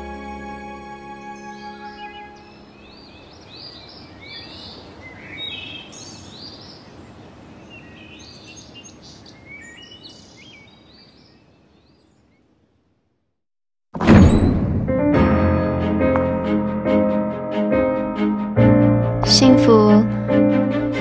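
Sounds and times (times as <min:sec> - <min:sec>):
soft outdoor background hiss: 0:00.0 - 0:13.4
small birds chirping: 0:01.2 - 0:12.5.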